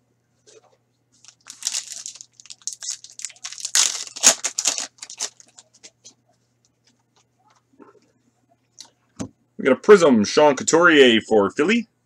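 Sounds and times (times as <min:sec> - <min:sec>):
wrapper tearing and crinkling: 0:01.2 - 0:05.7.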